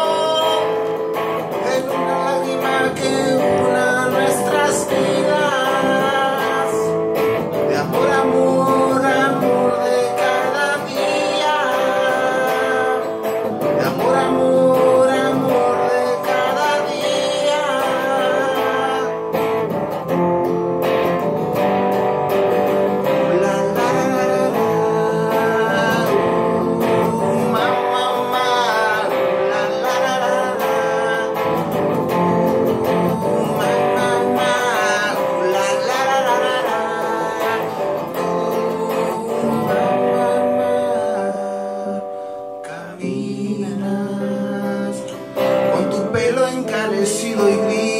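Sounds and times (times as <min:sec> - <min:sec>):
man singing slow song: 0:00.0 - 0:19.8, 0:22.6 - 0:47.9
acoustic guitar: 0:00.0 - 0:47.9.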